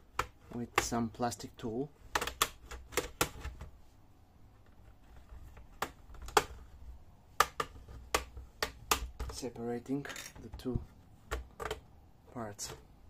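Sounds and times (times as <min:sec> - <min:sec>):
plastic clips snapping loose: 0:02.1 - 0:03.5, 0:05.6 - 0:06.6, 0:07.4 - 0:09.4.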